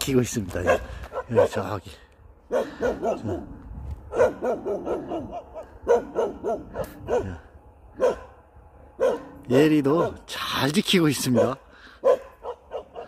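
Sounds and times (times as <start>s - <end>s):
dogs panting: 2.5s - 3.6s.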